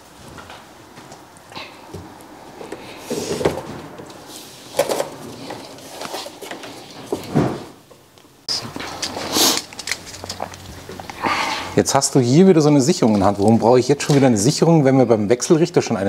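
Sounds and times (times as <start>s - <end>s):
rustling and clicking: 0.2s - 11.2s
knocks and clatters of parts: 1.9s - 8.0s.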